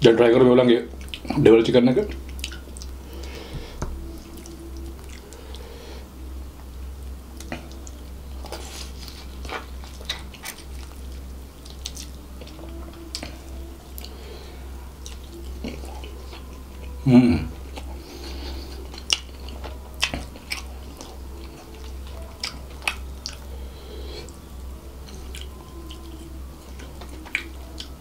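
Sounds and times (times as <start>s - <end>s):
wet chewing and mouth smacks: 1.0s - 1.3s, 2.1s - 3.4s, 7.3s - 14.2s, 15.0s - 17.0s, 18.7s - 23.5s, 25.1s - 28.0s.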